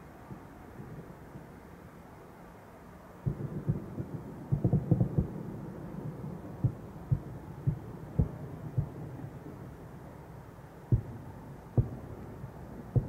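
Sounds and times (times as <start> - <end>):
distant fireworks booms: 3.2 - 9.9, 10.9 - 13.0.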